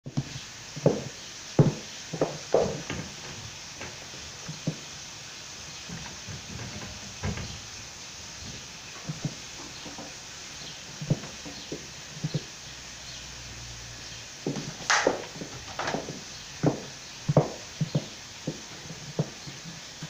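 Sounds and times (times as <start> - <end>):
high heels clicking on tiles: 0.0 - 4.8, 8.5 - 10.1, 14.4 - 19.8
wooden cabinet knocks: 0.8 - 4.8, 5.9 - 7.7, 14.5 - 19.4.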